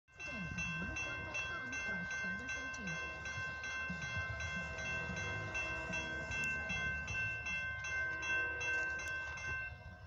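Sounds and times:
railroad crossing bells ringing: 0:00.1 - 0:10.0.

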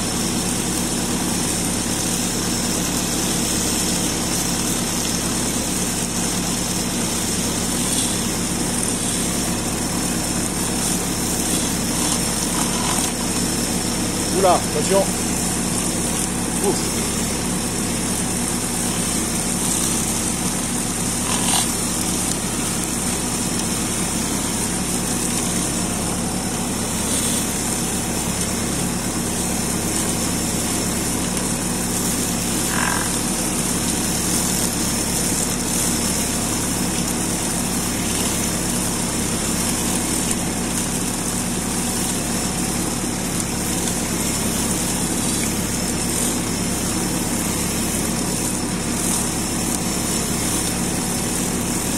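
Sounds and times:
tractor engine running: 0:00.0 - 0:51.9.

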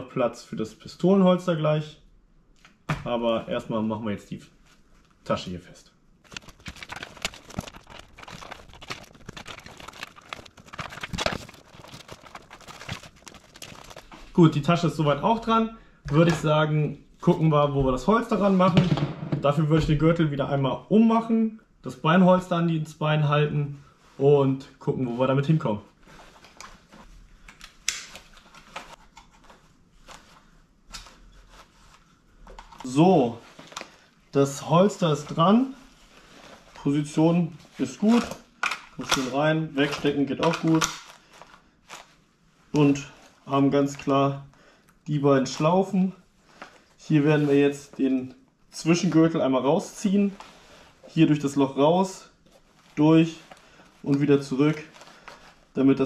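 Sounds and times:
nylon fabric rustling and scraping: 0:06.2 - 0:15.6, 0:28.1 - 0:38.4, 0:39.0 - 0:44.1, 0:45.2 - 0:56.0.

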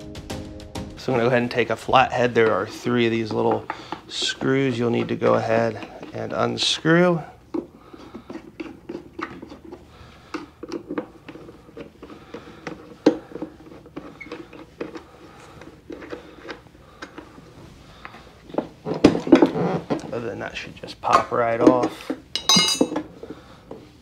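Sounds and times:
metal parts clattering: 0:22.3 - 0:23.0.

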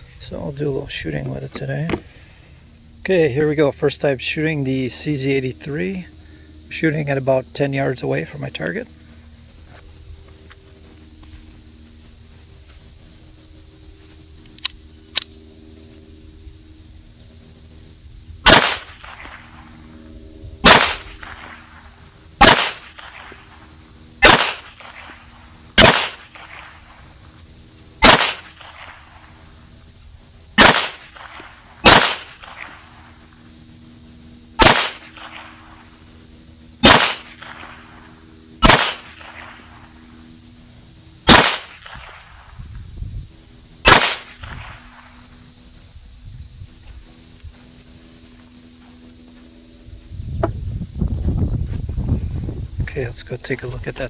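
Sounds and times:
pistol shots with echo: 0:18.4 - 0:19.6, 0:20.6 - 0:21.7, 0:22.4 - 0:23.4, 0:24.2 - 0:25.2, 0:25.8 - 0:26.9, 0:28.0 - 0:29.2, 0:30.6 - 0:32.8, 0:34.6 - 0:35.6, 0:36.8 - 0:38.0, 0:38.6 - 0:39.8, 0:41.2 - 0:42.4, 0:43.8 - 0:45.0.

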